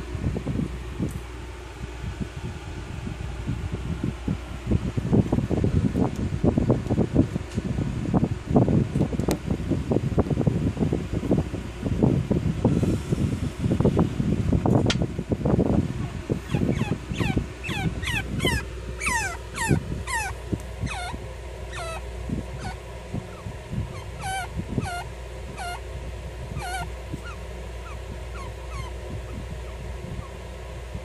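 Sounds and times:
chinchillas squeaking: 16.4 - 25.9, 26.5 - 30.5.

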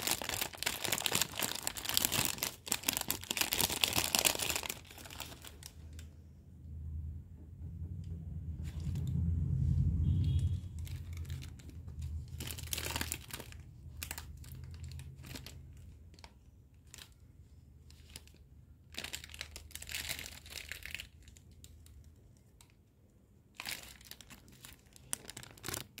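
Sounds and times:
croissant crinkling and tearing: 0.0 - 6.0, 10.8 - 22.7, 23.5 - 26.0
low rumble: 5.9 - 15.9.

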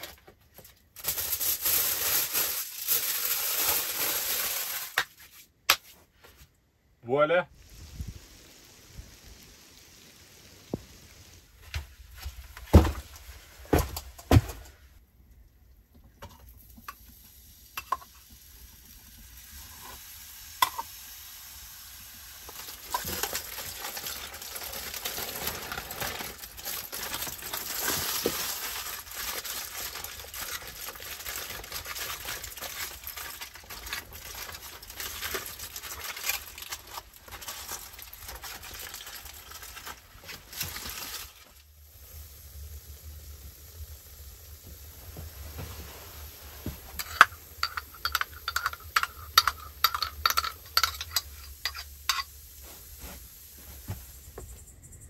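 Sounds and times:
food sizzling in a pan: 7.6 - 11.6, 16.6 - 54.1.

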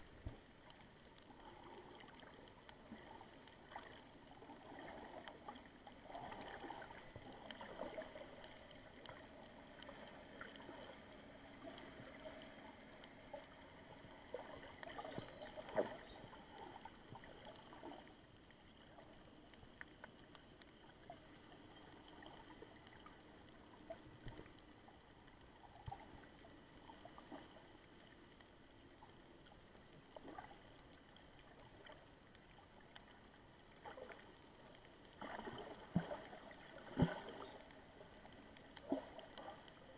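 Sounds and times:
low underwater water hum: 0.0 - 39.9
small clicks and ticks: 0.0 - 39.9.

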